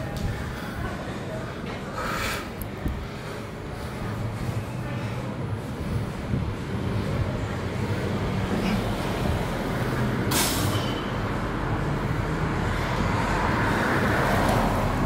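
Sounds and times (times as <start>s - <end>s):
low rumbling background noise: 0.0s - 15.0s
short sharp air hiss: 10.3s - 10.8s.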